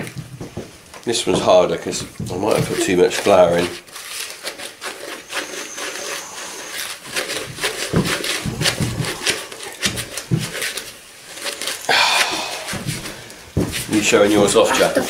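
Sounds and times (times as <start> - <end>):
spatula scraping a mixing bowl: 1.2 - 11.9.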